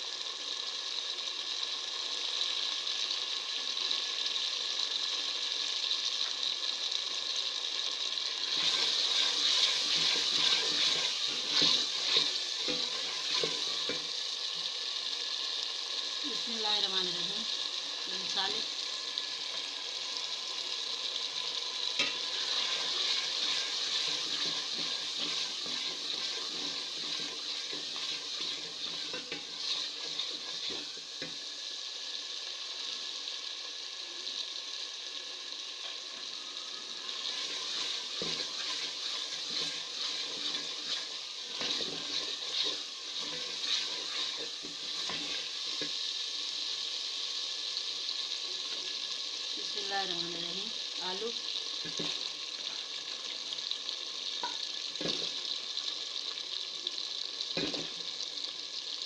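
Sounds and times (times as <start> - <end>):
masala sizzling in a metal pot: 0.0 - 59.0
wooden spoon scraping a pot: 8.4 - 14.1, 22.0 - 31.3, 37.2 - 46.0.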